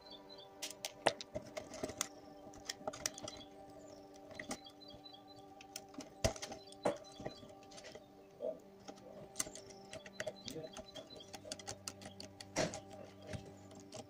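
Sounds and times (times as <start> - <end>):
tool clicks on plastic and metal: 8.9 - 14.0.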